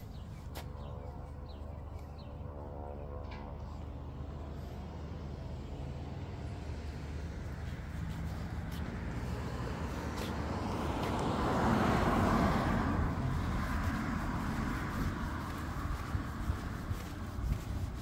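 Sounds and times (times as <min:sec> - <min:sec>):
car driving past: 0:08.9 - 0:16.9.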